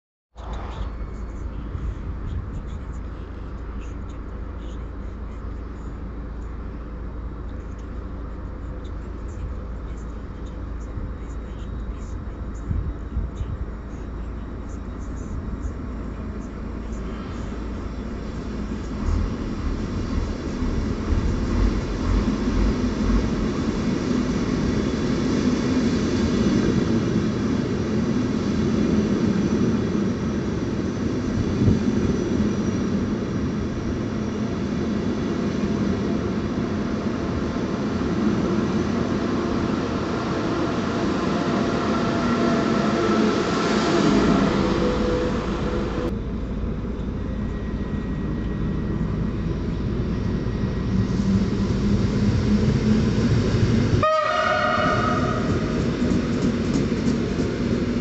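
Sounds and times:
train wheels rumbling on rail: 14.6 - 58.0.

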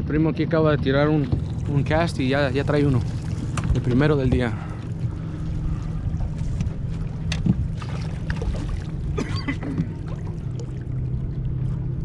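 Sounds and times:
boat motor humming: 0.0 - 12.0
faint water sounds: 0.0 - 12.0.

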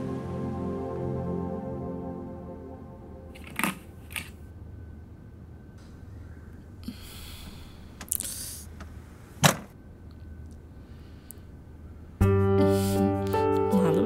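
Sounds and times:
film score music: 0.0 - 6.6, 12.2 - 14.0.

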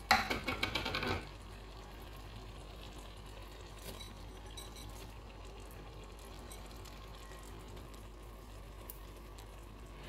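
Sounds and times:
sauce simmering in a pan: 0.0 - 10.0.

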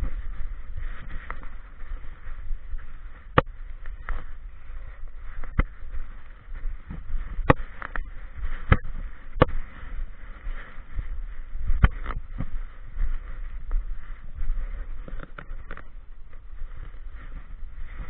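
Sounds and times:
fur and leaves rustling: 0.0 - 18.0
camera handling rumble: 6.8 - 10.0, 11.6 - 12.7, 14.5 - 17.0.

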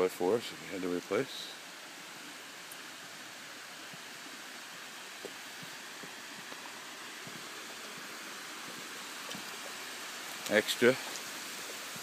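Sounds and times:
running water hissing: 0.0 - 12.0
faint footsteps: 5.1 - 12.0.

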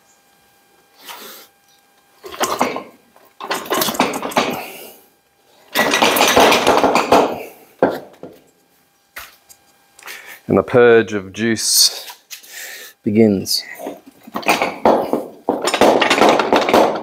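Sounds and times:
metal tools clattering and scraping: 2.2 - 4.6, 5.7 - 7.3.

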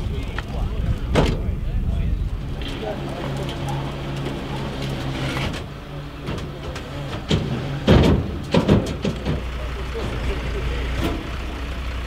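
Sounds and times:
truck engine idling: 0.0 - 12.0
loud clunks: 5.0 - 10.3.

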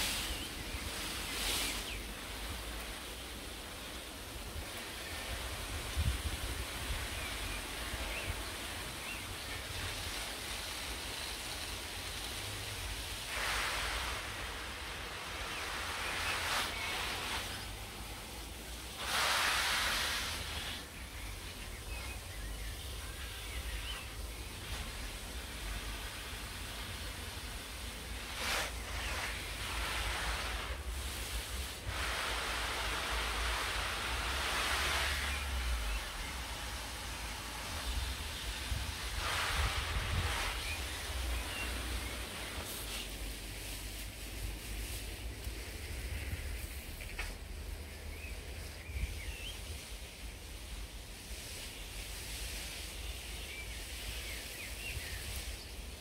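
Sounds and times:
wind rumble on microphone: 0.0 - 18.7, 28.8 - 51.0
hose nozzle spraying water: 0.0 - 56.0
wind gusting: 30.7 - 43.6
wind buffeting microphone: 37.6 - 41.8.

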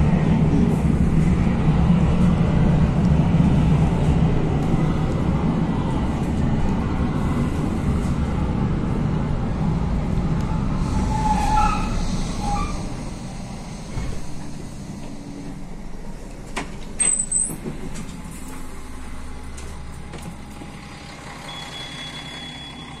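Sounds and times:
diesel railcar engine hum: 0.0 - 23.0
short high beep: 21.5 - 23.0.

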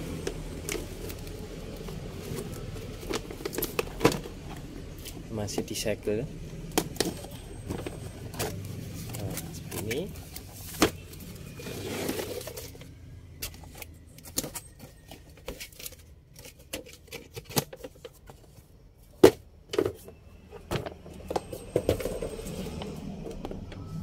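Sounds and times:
cardboard rustling: 0.1 - 5.8, 6.9 - 12.9.

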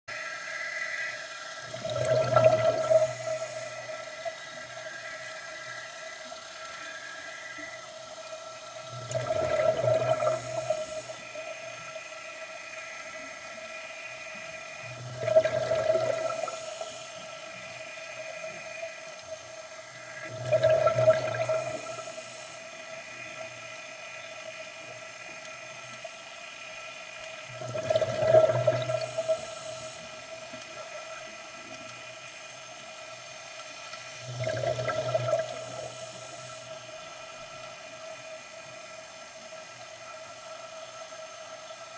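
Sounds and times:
steady thin whine: 0.1 - 41.9
exhaled bubbles gurgling: 1.6 - 6.0, 7.4 - 13.7, 14.3 - 26.1, 27.4 - 32.1, 33.9 - 37.5.

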